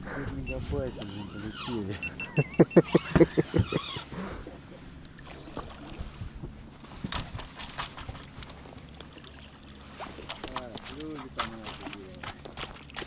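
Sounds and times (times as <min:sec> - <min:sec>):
person laughing: 0:01.9 - 0:04.6.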